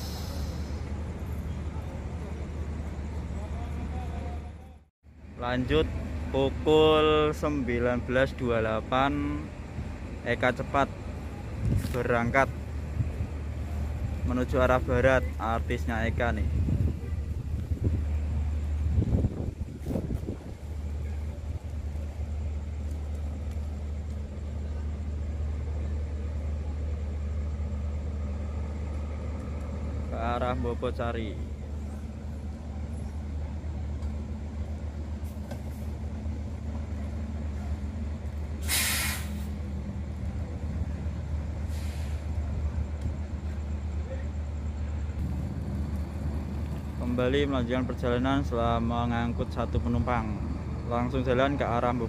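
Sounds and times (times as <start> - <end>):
air brake hiss: 0.0 - 1.2, 38.6 - 39.7, 41.6 - 42.4
bus diesel engine rumbling: 0.0 - 52.0.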